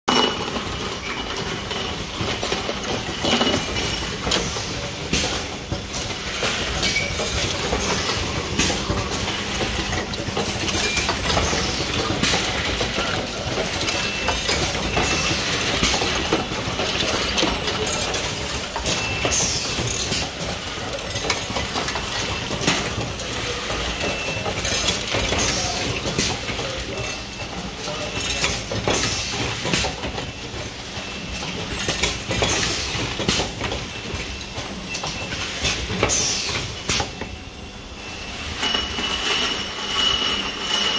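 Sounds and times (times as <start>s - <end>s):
machine mechanical clatter: 0.1s - 37.3s
metallic clicks of steel balls: 38.6s - 40.9s.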